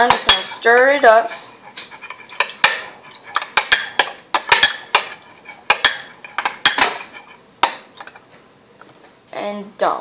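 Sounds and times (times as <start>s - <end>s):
metal spoon clinking glass bowl: 0.0s - 1.0s, 2.0s - 8.2s.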